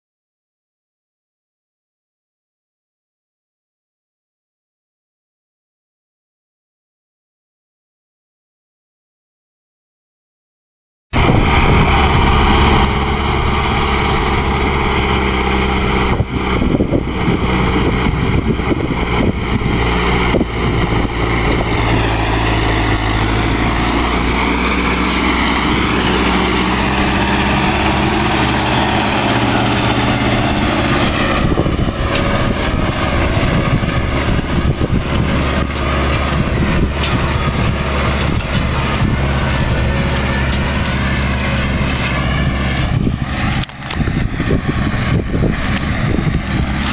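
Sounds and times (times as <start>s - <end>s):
tractor diesel engine running: 11.2s - 46.9s.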